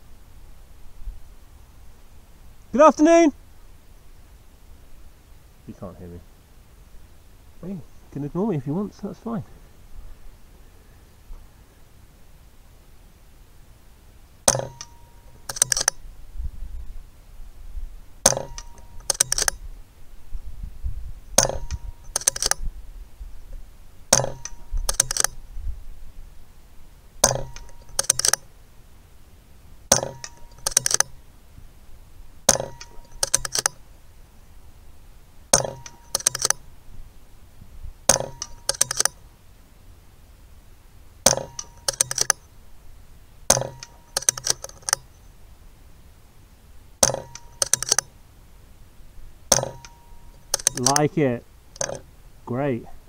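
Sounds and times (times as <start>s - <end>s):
air rifle shots: 14.5s - 14.9s, 18.2s - 19.5s, 21.4s - 22.6s, 24.1s - 25.4s, 27.2s - 28.4s, 29.9s - 31.1s, 32.5s - 33.8s, 35.5s - 36.6s, 38.1s - 39.2s, 41.2s - 42.4s, 43.5s - 45.0s, 47.0s - 48.0s, 49.5s - 51.1s
rifle action clicks: 14.5s - 16.0s, 18.2s - 19.6s, 21.4s - 22.6s, 24.1s - 25.4s, 27.2s - 28.5s, 29.9s - 31.2s, 32.5s - 33.8s, 35.5s - 36.6s, 38.1s - 39.2s, 41.3s - 42.4s, 43.5s - 45.1s, 47.0s - 48.1s, 49.5s - 51.0s, 51.8s - 52.0s.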